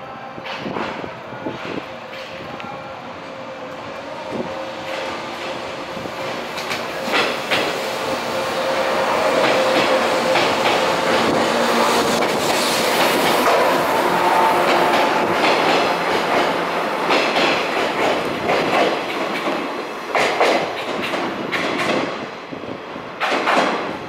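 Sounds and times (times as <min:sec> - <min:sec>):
electric train passing: 0:01.0 - 0:24.0
wheels clacking over rail joints: 0:04.8 - 0:07.9, 0:09.1 - 0:22.1.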